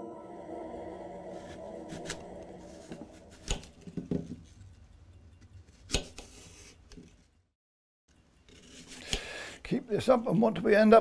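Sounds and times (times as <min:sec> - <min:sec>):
knife cutting apple on plate: 0:05.7 - 0:06.6.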